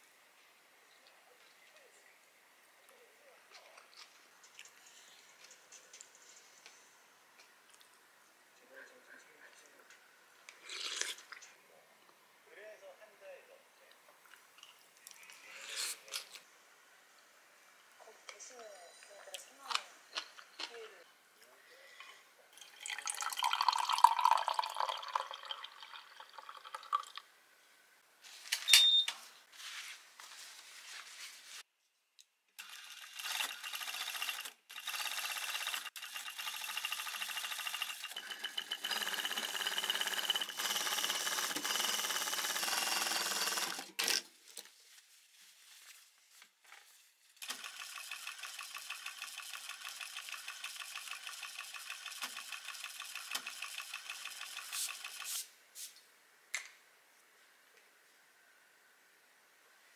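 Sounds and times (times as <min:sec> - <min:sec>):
coffee pouring into glass mug: 0:22.5 - 0:27.3
sewing machine stitching: 0:32.6 - 0:44.2, 0:47.4 - 0:55.4.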